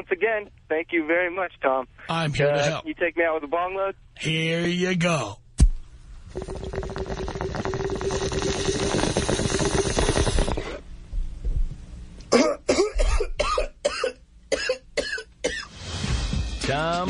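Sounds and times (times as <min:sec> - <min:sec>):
water bong bubbling: 0:06.2 - 0:10.9
person hacking coughs: 0:12.3 - 0:15.7.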